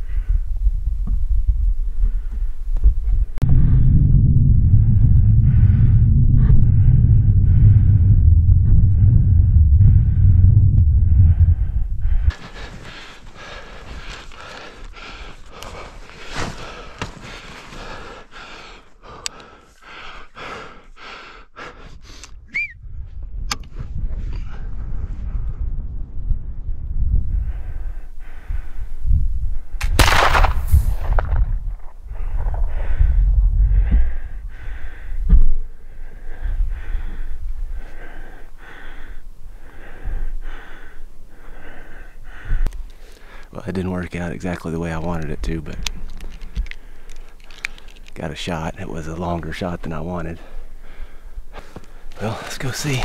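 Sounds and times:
wind rumble on microphone: 0.0 - 18.0, 21.8 - 53.0
hard breathing: 3.4 - 22.4, 27.3 - 28.9, 32.1 - 43.6, 45.8 - 48.2, 50.3 - 53.0
footsteps crunching in snow: 12.3 - 18.2
sharp loud crack: 29.8 - 31.7.

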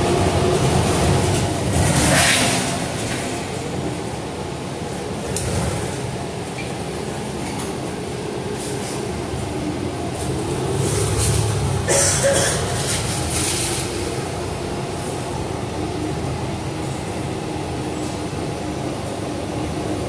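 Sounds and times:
bus interior rumble: 0.0 - 20.0.

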